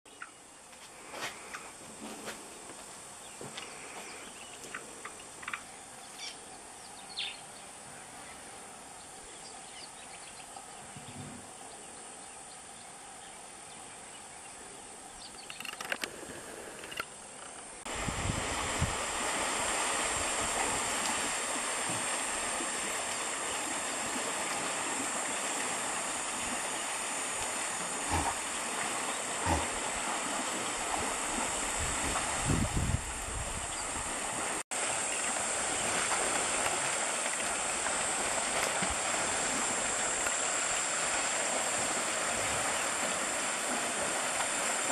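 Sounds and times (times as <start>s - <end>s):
steady rushing noise: 17.8s - 44.9s.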